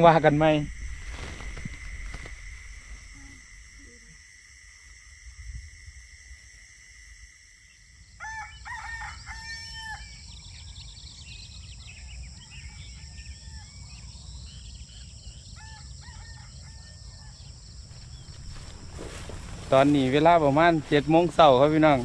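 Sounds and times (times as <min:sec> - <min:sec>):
high insect drone: 0:00.0 - 0:22.0
rooster crowing: 0:08.0 - 0:10.2, 0:15.6 - 0:17.5.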